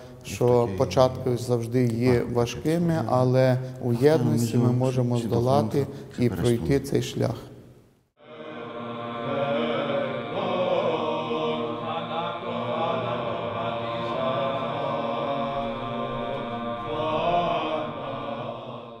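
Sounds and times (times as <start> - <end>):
choir chanting slow melody: 8.2 - 19.0.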